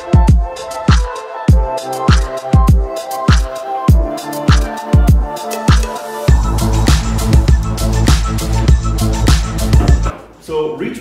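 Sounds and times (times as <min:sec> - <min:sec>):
sustained synth notes: 0:03.9 - 0:09.8
deep kick drum: 0:06.3 - 0:10.1.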